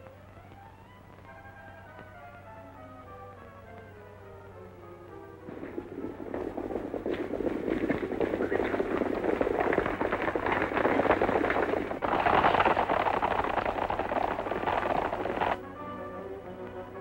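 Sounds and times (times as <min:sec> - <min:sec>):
music: 0:00.0 - 0:06.8, 0:15.6 - 0:17.0
low steady hum: 0:00.0 - 0:17.0
horses galloping on dirt: 0:05.2 - 0:15.6.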